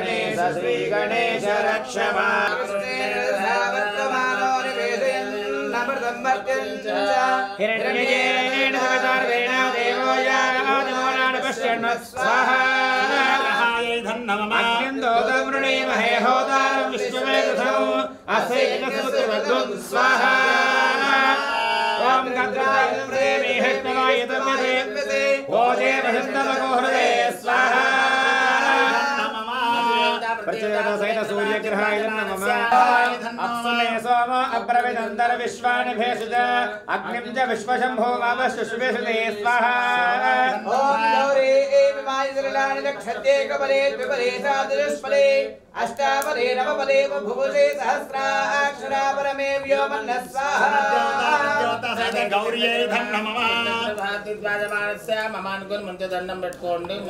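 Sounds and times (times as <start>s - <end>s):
person chanting melodically: 0.0s - 57.0s.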